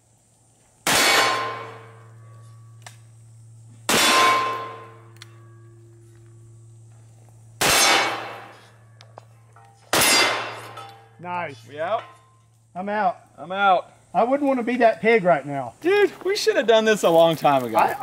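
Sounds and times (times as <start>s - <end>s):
revolver gunshots: 0.8s - 2.0s, 3.9s - 5.0s, 7.6s - 8.6s, 9.9s - 10.8s
steel target ringing: 0.9s - 2.8s, 3.9s - 6.7s, 7.6s - 12.5s.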